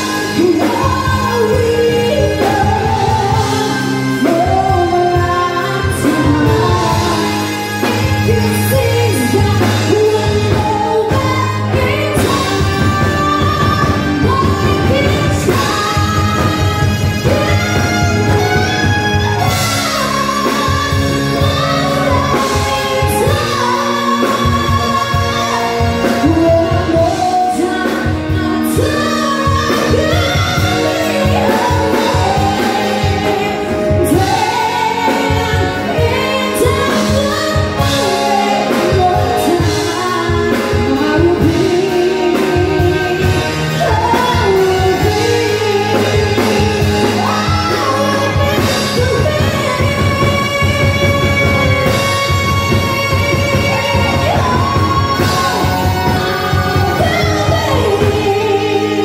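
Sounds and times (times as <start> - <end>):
band with steady drum beat: 0.0 - 59.0
woman singing: 0.0 - 59.0.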